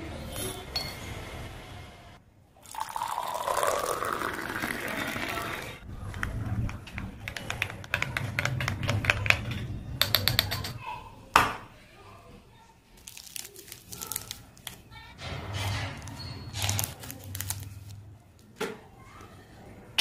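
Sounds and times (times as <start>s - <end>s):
hot milk pouring into jug: 2.7s - 5.8s.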